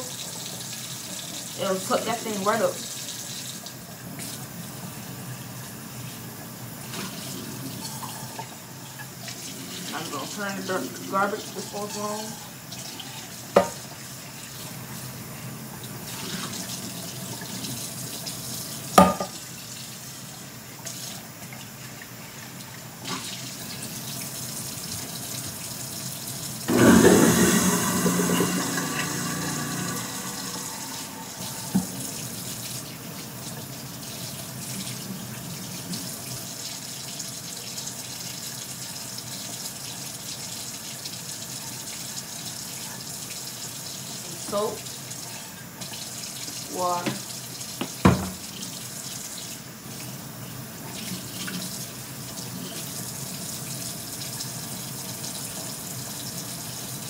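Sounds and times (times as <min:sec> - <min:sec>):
faucet running into steel sink: 0:00.0 - 0:05.4, 0:06.0 - 0:57.0
pan knocking against sink: 0:13.6 - 0:13.8, 0:19.0 - 0:19.4, 0:31.7 - 0:32.0, 0:47.8 - 0:48.4
loud water surge: 0:26.7 - 0:31.9.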